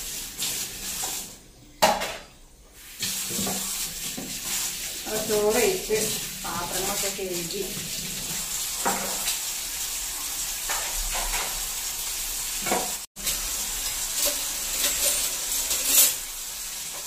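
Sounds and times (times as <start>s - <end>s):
steel utensils clinking: 13.2s - 16.4s.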